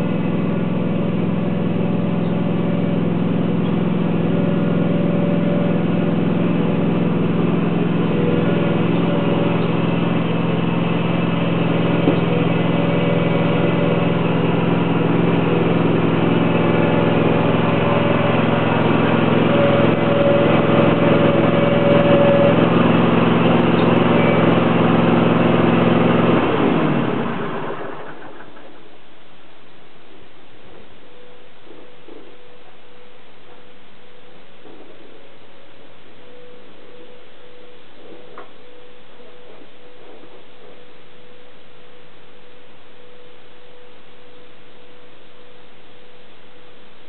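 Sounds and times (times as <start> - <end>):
small engine running: 0.0 - 29.0.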